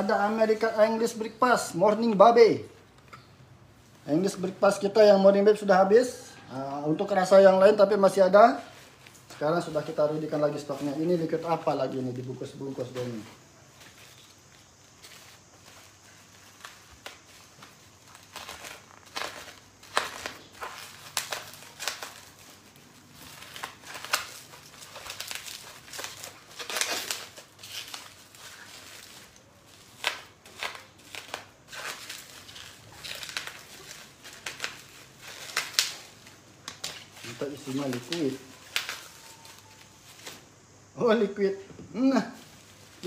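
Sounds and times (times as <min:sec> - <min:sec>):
packaging wrap crinkling and tearing: 0:07.6 - 0:40.5, 0:42.1 - 0:43.0.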